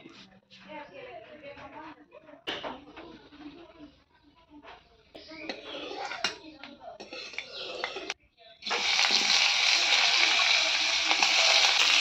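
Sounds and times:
onions sizzling in hot oil: 0:08.6 - 0:12.0.

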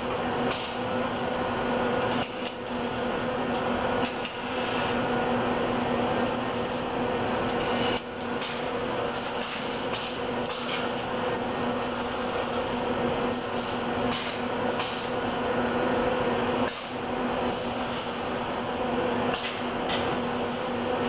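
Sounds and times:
robot arms rasping: 0:06.2 - 0:14.4.

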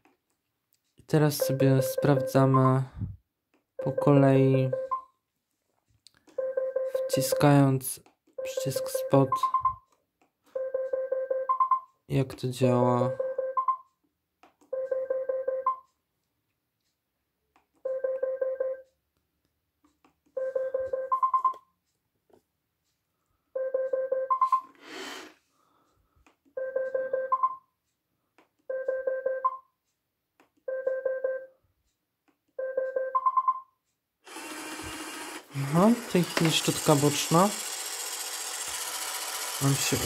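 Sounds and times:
side-brush motor running: 0:34.3 - 0:40.0.

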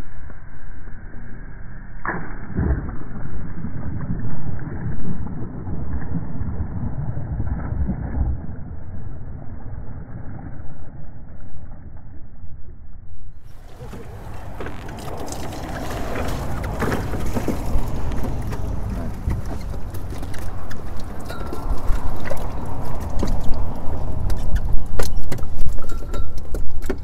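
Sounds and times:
cast net whooshing through air: 0:13.4 - 0:25.7
net splashing into water: 0:13.5 - 0:24.8.

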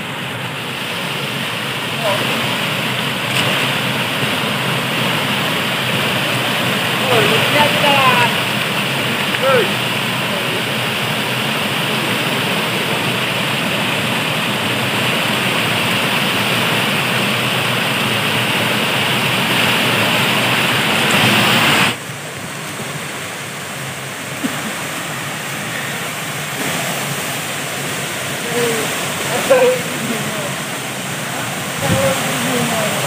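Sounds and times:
river rushing over waterfalls: 0:00.0 - 0:33.0.

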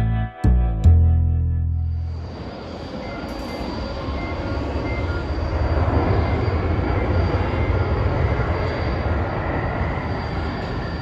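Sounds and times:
faint high whine: 0:01.6 - 0:11.0.

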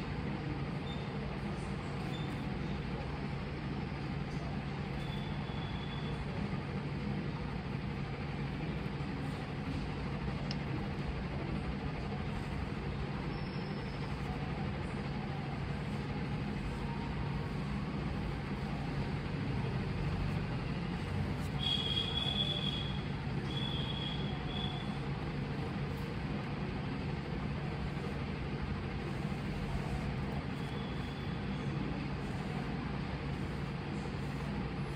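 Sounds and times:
low background hum: 0:00.0 - 0:34.9.

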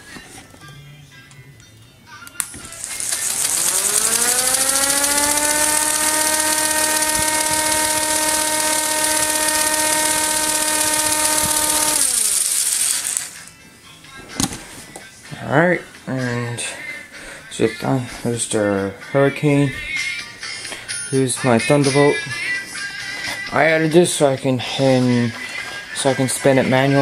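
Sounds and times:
toy electric motor whining: 0:02.4 - 0:13.5
high hiss: 0:02.7 - 0:13.5.

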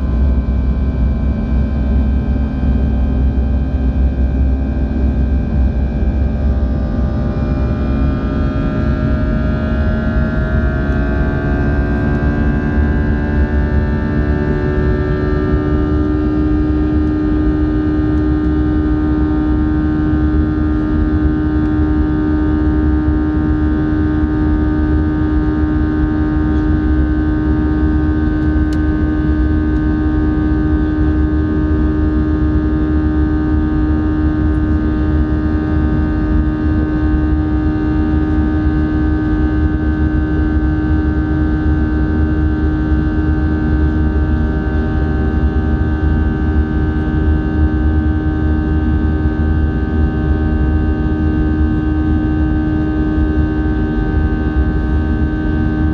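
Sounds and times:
airplane cabin engine drone: 0:00.0 - 0:55.9.

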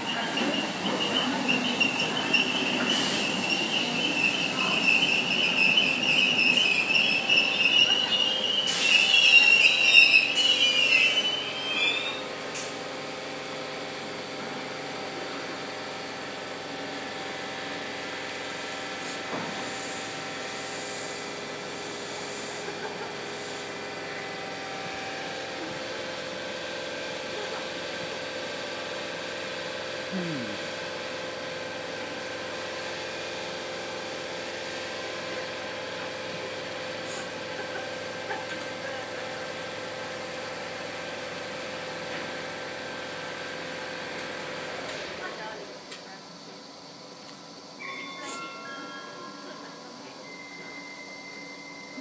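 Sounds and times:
train brakes squealing: 0:00.0 - 0:12.9, 0:47.8 - 0:52.0
stationary train humming: 0:00.0 - 0:52.0.

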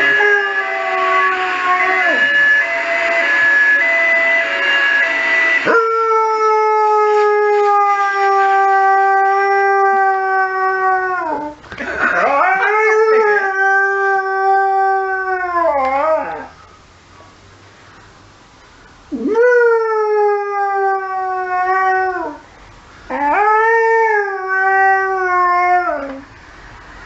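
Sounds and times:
dog howling: 0:00.0 - 0:02.4, 0:05.6 - 0:11.6, 0:12.2 - 0:16.6, 0:23.1 - 0:26.2
two-tone siren: 0:00.0 - 0:08.7.

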